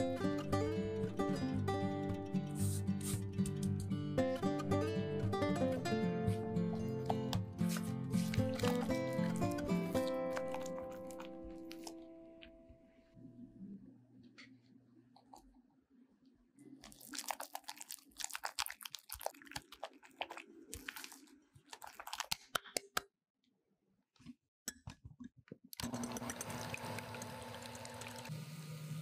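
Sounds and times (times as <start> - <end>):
electric hand mixer running: 25.8 - 29.0.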